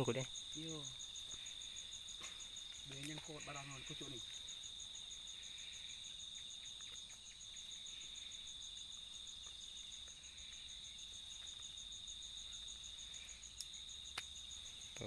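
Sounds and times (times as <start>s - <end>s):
crickets chirring: 0.0s - 15.0s
faint light ticks: 2.7s - 3.2s.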